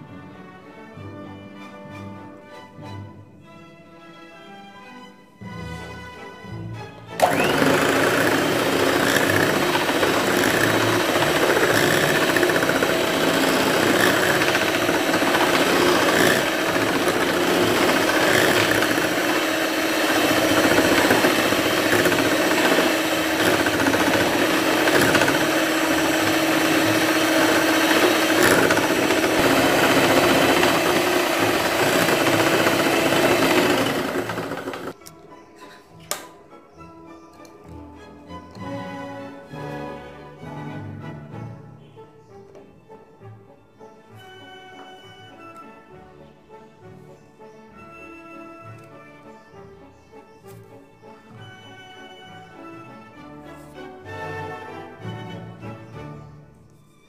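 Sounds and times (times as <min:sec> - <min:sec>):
electric hand mixer whisking: 0:07.2 - 0:35.0.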